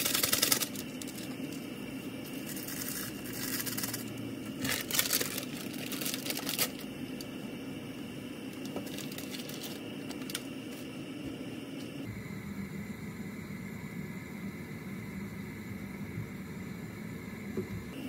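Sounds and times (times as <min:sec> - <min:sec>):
plastic packet crinkling: 0:00.0 - 0:07.3, 0:08.6 - 0:10.5
gas burner hiss: 0:00.0 - 0:18.0.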